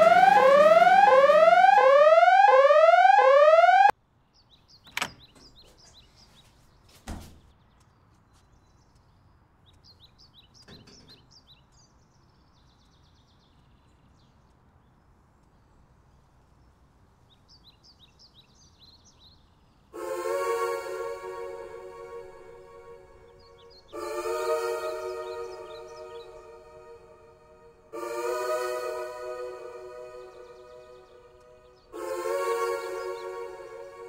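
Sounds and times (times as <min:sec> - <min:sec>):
rising electronic tone: 0:00.0 - 0:03.9, 0:20.0 - 0:34.0
music: 0:20.0 - 0:34.0
birds chirping: 0:20.8 - 0:28.0.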